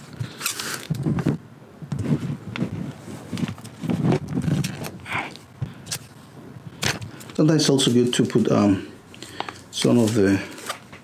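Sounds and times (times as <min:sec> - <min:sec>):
tape dispenser handled: 0:00.2 - 0:01.1.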